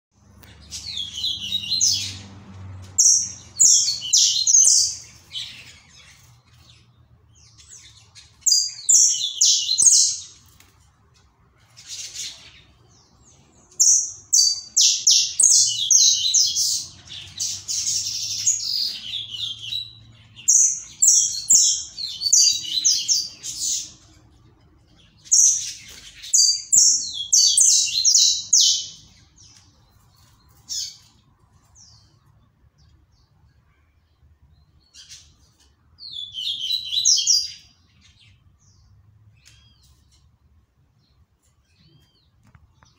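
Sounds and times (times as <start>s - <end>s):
finch singing: 0.2s - 10.6s, 11.6s - 40.3s.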